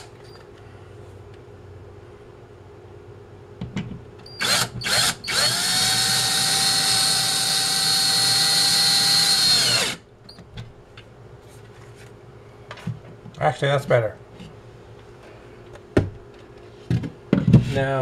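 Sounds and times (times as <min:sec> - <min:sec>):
cordless drill driving screw: 0:04.4 - 0:10.0.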